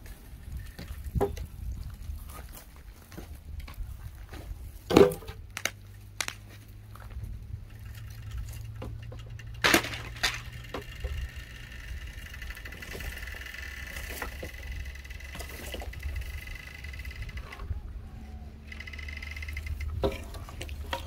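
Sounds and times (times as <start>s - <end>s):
dry branches snapping: 3.1s - 10.9s.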